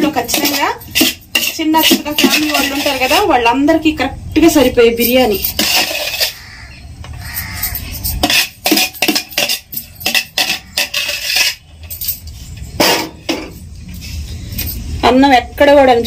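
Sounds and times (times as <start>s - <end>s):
utensil scraping steel platter: 0.0s - 3.5s, 5.0s - 6.6s, 7.2s - 14.8s.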